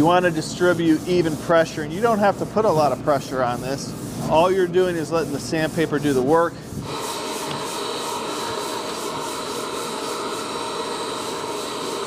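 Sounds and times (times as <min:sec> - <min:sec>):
dust extractor running with whine: 0:06.2 - 0:12.0.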